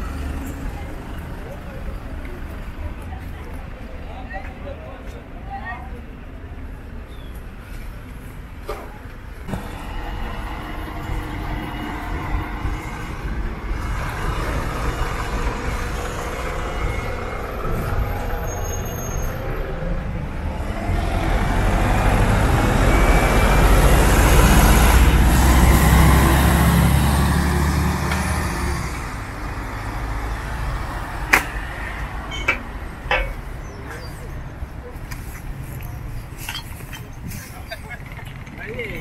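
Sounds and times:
bus diesel engine rumble: 0:00.0 - 0:39.0
street traffic noise: 0:00.0 - 0:39.0.

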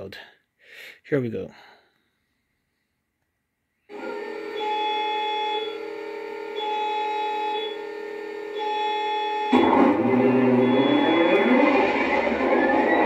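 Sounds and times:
electrical hum of held tones: 0:03.9 - 0:13.0
high beeping tone: 0:08.6 - 0:13.0.

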